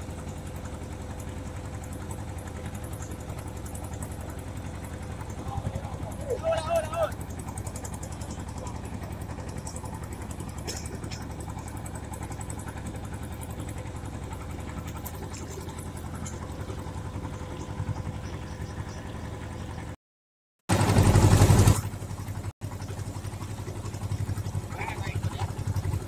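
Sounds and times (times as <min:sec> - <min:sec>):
boat engine rumbling: 0:00.0 - 0:20.0, 0:20.7 - 0:26.0.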